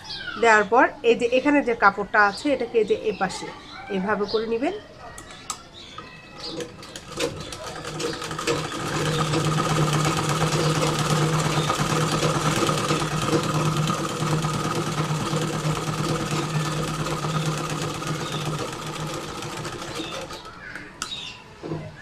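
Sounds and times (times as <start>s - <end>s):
sewing machine stitching: 6.5s - 20.6s.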